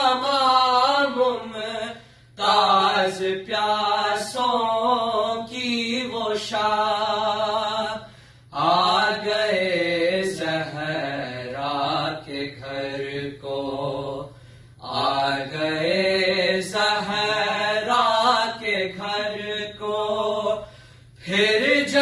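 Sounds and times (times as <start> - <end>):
men chanting: 8.6 - 20.6, 21.2 - 22.0.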